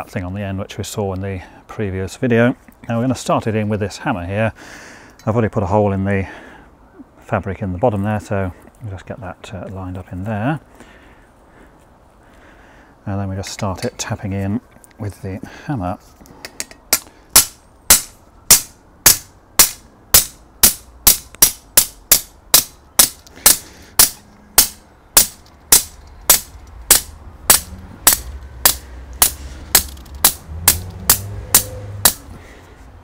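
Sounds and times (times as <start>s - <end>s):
hammer striking metal rod: 16.6s - 32.3s.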